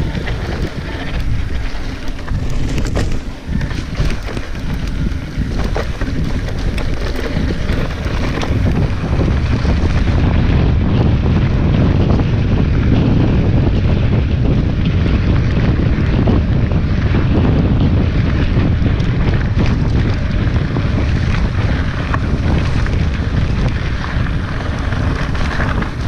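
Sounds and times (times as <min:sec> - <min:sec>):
bike tyres knocking over stones: 0:00.0 - 0:10.2
wind buffeting microphone: 0:00.0 - 0:26.0.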